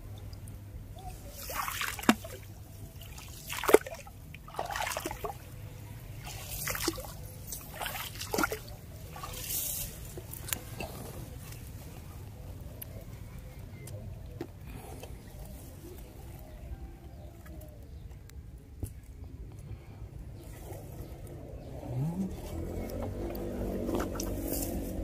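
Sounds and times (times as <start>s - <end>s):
water splashing and sloshing: 0.0s - 12.0s, 21.9s - 25.0s.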